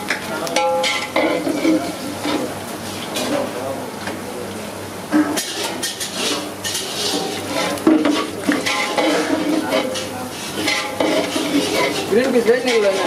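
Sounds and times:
food sizzling: 0.0s - 13.0s
metal ladle scraping pan: 0.6s - 2.5s, 5.1s - 13.0s.

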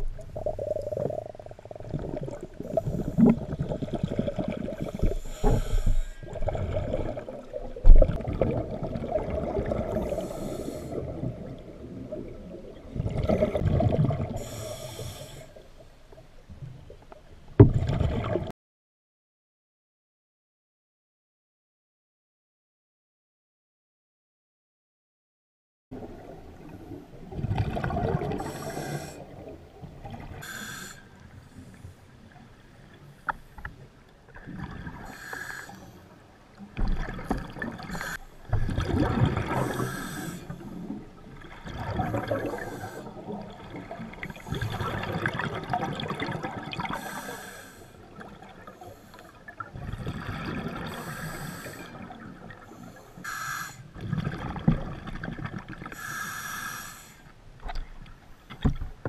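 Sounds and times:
exhaled bubbles gushing: 0.0s - 14.6s, 17.7s - 18.5s, 26.0s - 30.4s, 34.3s - 35.1s, 36.7s - 47.2s, 49.5s - 51.2s, 54.0s - 56.0s
regulator inhale hiss: 4.9s - 6.4s, 10.0s - 11.1s, 14.4s - 15.8s, 28.4s - 29.3s, 30.4s - 32.0s, 35.0s - 36.2s, 37.9s - 38.4s, 39.6s - 40.7s, 42.5s - 43.3s, 46.9s - 48.1s, 48.7s - 49.5s, 50.9s - 52.0s, 52.7s - 53.9s, 55.9s - 57.4s.

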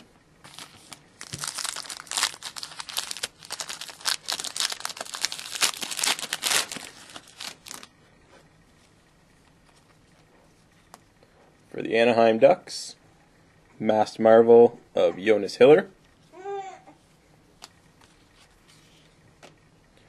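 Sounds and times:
foil wrapper tearing and crinkling: 0.5s - 7.9s.

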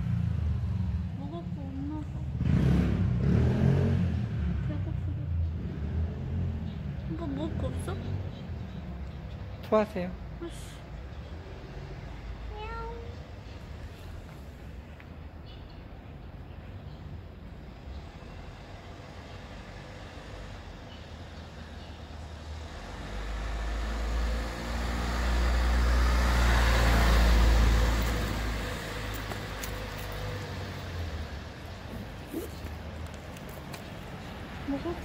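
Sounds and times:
motor vehicle driving past: 2.0s - 9.8s, 17.7s - 35.0s.

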